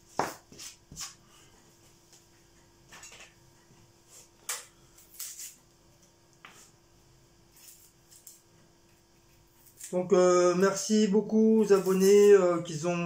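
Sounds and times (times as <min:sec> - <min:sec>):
faint steady hum: 0:00.0 - 0:13.0
onion skin crackling and rustling: 0:11.6 - 0:12.5.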